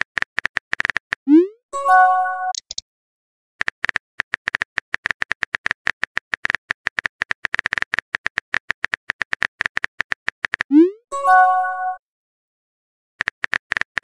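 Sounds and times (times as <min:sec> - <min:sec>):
keyboard typing clicks: 0:02.5 - 0:02.8.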